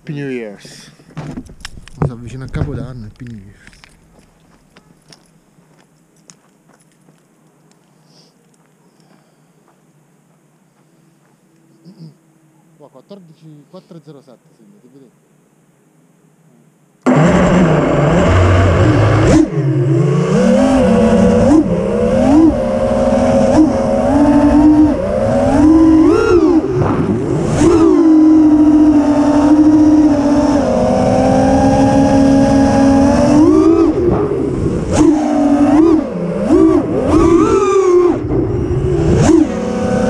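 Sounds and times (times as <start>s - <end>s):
drone motors whining: 17.0s - 40.0s.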